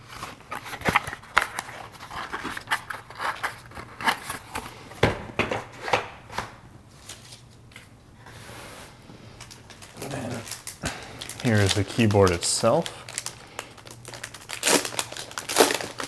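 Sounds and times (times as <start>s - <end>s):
cardboard packaging clicks and scrapes: 0.0s - 4.7s.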